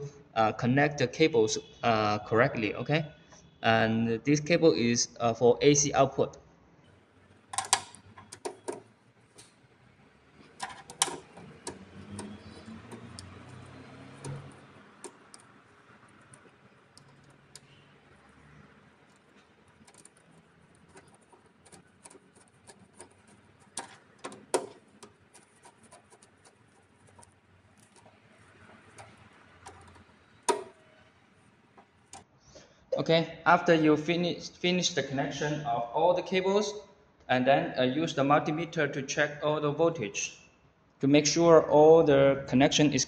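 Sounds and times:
wires clicking into terminals: 7.2 - 32.3.

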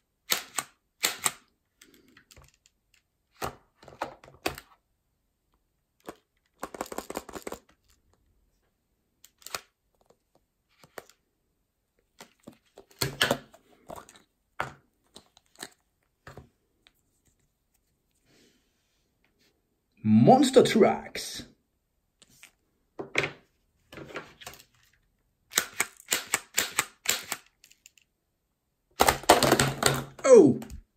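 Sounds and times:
plastic toys clicking and clattering: 0.3 - 4.8, 6.0 - 8.2, 9.2 - 11.2, 12.2 - 15.8, 24.0 - 28.1, 29.0 - 30.3.

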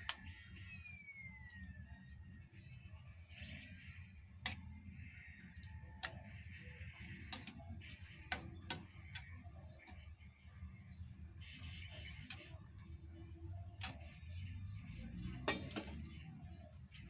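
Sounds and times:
metal spatula scraping frying pan: 14.0 - 16.3.

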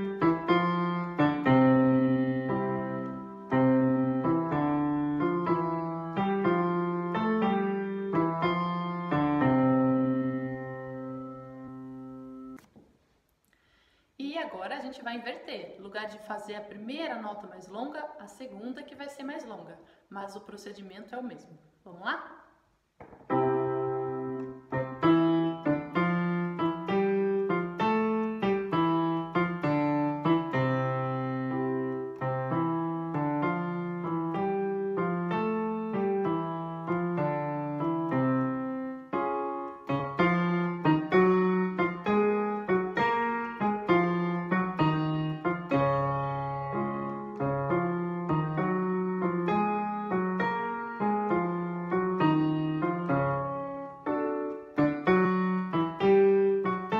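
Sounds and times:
piano playing short phrases: 0.0 - 12.7, 21.9 - 56.9.

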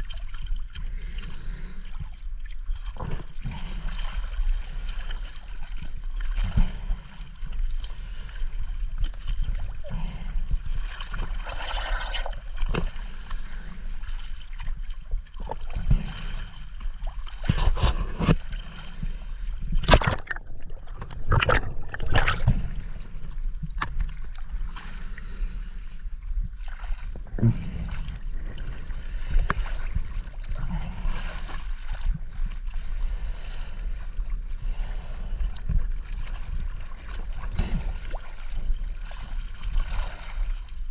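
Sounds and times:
water sloshing and splashing: 0.0 - 40.9
steady low rumble: 12.2 - 40.9.

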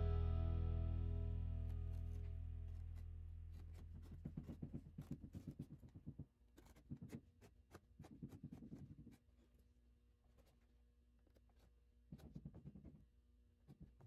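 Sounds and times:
guitar music: 0.0 - 2.8
pen scratching on burlap: 1.9 - 13.0.

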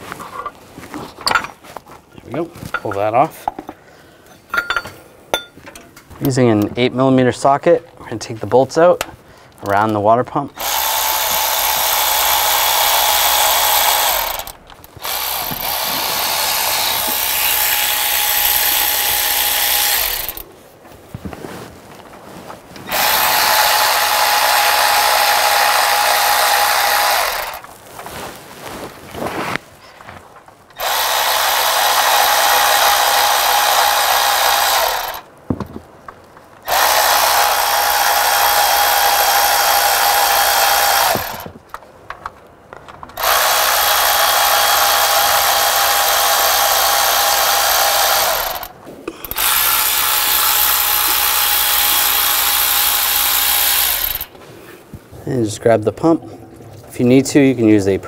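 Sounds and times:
electric ratchet motor whine: 10.6 - 20.4, 22.8 - 27.7, 30.8 - 35.2, 36.7 - 41.5, 43.2 - 54.3.

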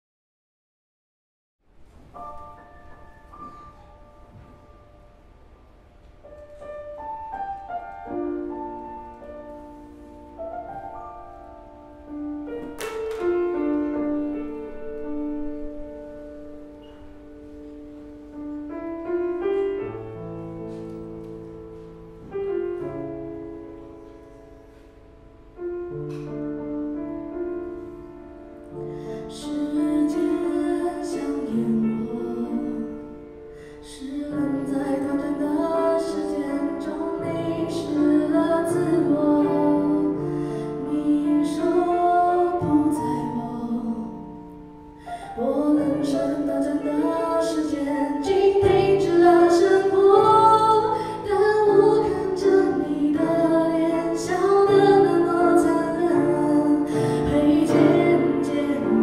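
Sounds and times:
grand piano ballad: 1.8 - 59.0
woman singing: 29.2 - 33.2, 33.8 - 44.5, 45.1 - 59.0.

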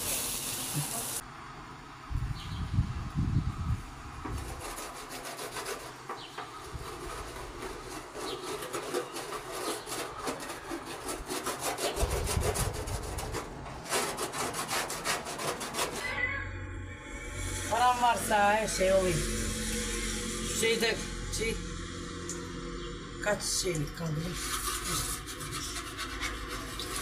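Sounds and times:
spatula scraping metal griddle: 4.3 - 16.2, 17.3 - 27.0.

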